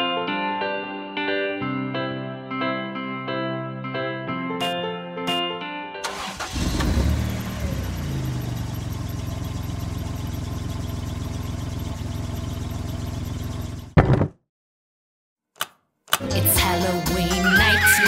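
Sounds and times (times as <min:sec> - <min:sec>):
vehicle engine idling: 0:06.5 - 0:14.0.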